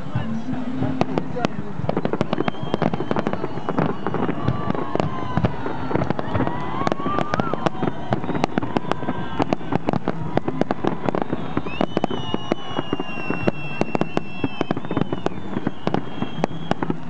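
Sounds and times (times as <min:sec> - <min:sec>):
fireworks bangs and crackles: 0:00.0 - 0:17.0
high whistle: 0:01.9 - 0:05.3, 0:06.5 - 0:10.0, 0:11.0 - 0:17.0.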